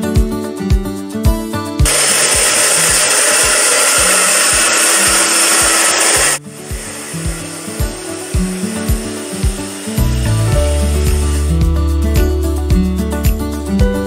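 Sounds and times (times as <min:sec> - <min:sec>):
music with steady beat: 0:00.0 - 0:14.0
grooming dryer blowing air: 0:01.8 - 0:11.6.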